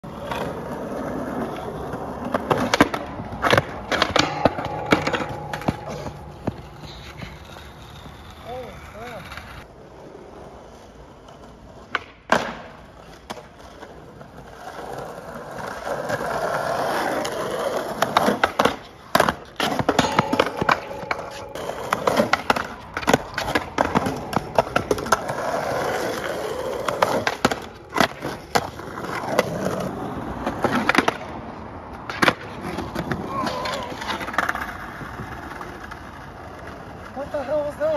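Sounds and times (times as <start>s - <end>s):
skateboard clacking on pavement: 0.0s - 37.9s
skateboard wheels rolling on asphalt: 0.0s - 37.9s.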